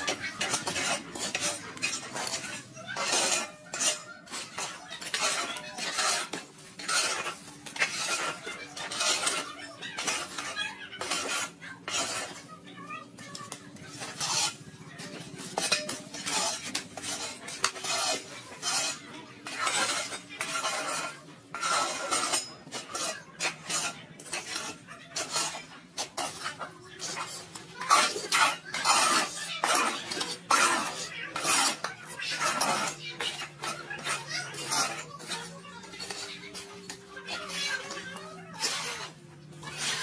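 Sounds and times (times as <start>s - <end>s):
scraping and clattering: 0.0s - 40.0s.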